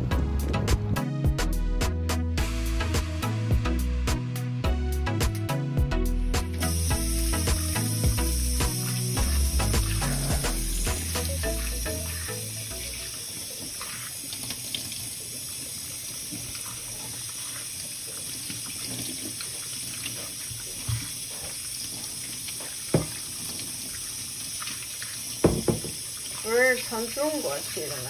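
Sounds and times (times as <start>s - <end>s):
hands rinsing vegetables: 6.4s - 28.0s
tap water splashing into sink: 7.3s - 21.6s, 22.4s - 28.0s.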